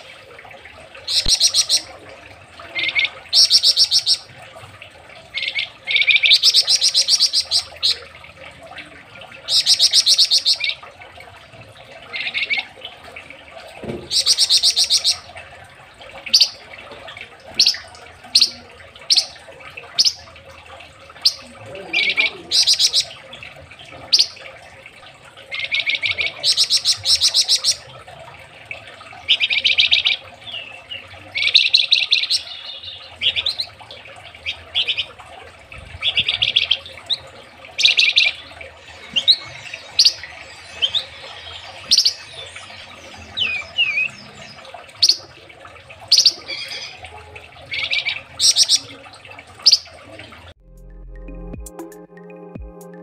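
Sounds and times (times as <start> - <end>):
songbird singing: 1.0 - 4.5, 5.1 - 10.9, 13.8 - 15.5, 16.2 - 24.7, 25.4 - 50.4.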